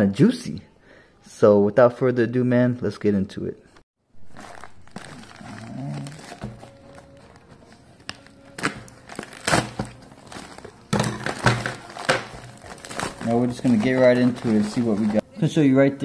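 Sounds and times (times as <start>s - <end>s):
plastic crinkling and rustling: 4.2s - 15.2s
scissors cutting plastic mailer: 4.3s - 15.2s.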